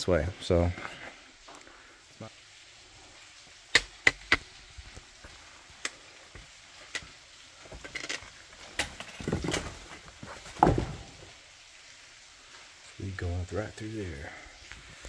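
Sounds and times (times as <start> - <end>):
scraping and knocking on rock: 7.6 - 11.3.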